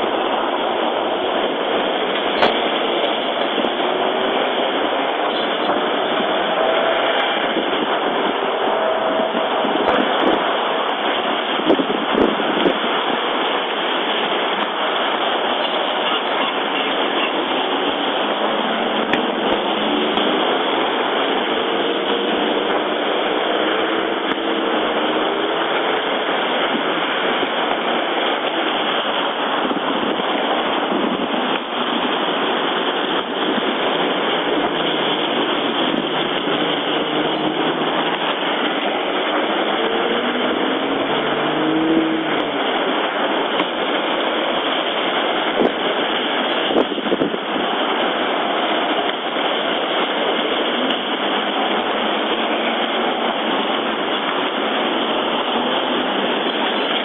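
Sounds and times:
steady vehicle noise: 0:00.0 - 0:57.0
passing car engines: 0:33.2 - 0:43.7.

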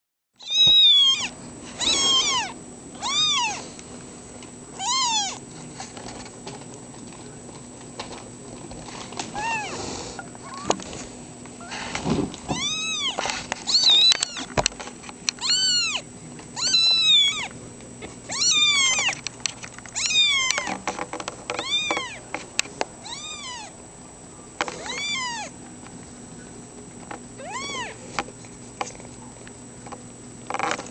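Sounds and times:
kittens mewing: 0:00.4 - 0:03.7, 0:04.8 - 0:05.4, 0:09.3 - 0:10.9, 0:12.5 - 0:14.6, 0:15.4 - 0:19.2, 0:19.9 - 0:20.8, 0:23.0 - 0:23.8, 0:24.8 - 0:25.6, 0:27.4 - 0:28.1.

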